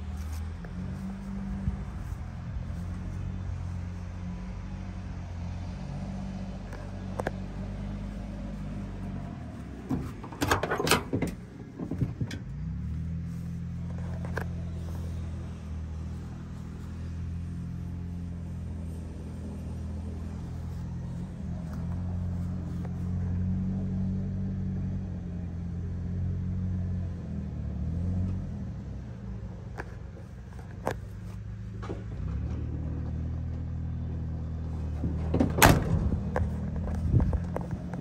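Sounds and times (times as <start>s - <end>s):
truck engine idling: 0.0s - 38.0s
cab door slamming: 9.8s - 12.5s, 35.0s - 36.3s.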